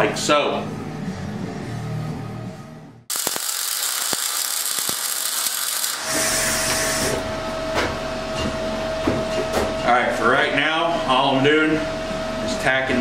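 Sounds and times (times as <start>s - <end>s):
sharp pops: 3.1s - 6.1s
electric welding arc crackling: 3.1s - 7.1s.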